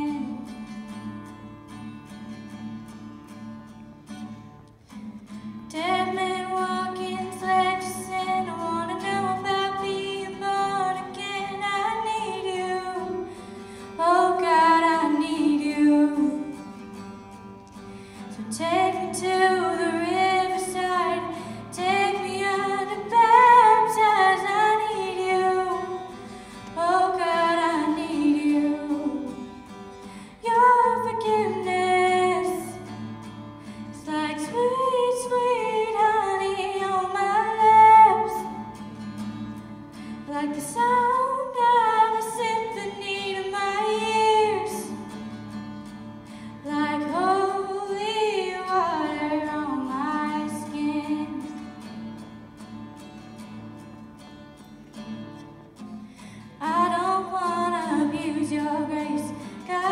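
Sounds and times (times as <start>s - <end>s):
girl singing into microphone: 0.0s - 0.9s, 5.7s - 16.9s, 18.3s - 33.1s, 33.7s - 39.0s, 40.0s - 45.4s, 46.3s - 51.9s, 56.2s - 59.9s
strummed acoustic guitar: 0.0s - 59.9s.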